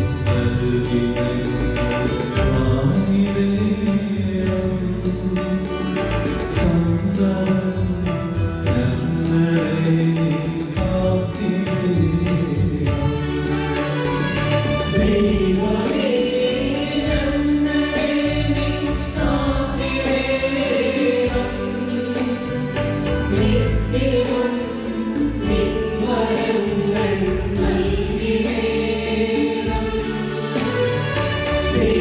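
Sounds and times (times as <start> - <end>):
sustained bass notes: 0.0 - 32.0
choir singing a hymn: 13.2 - 32.0.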